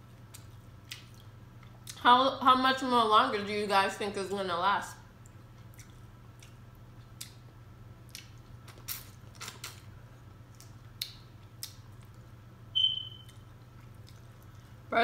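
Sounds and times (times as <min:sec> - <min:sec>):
wet chewing mouth smacks: 0:05.2 - 0:07.4, 0:08.1 - 0:09.8, 0:10.5 - 0:12.3, 0:12.9 - 0:14.7
high-pitched squeak: 0:12.8 - 0:13.3.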